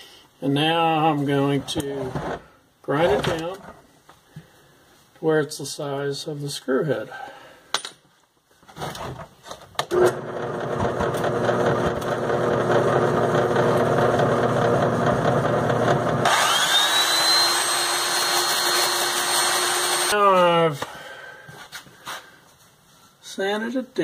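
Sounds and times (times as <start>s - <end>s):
belt sander running: 9.9s - 20.2s.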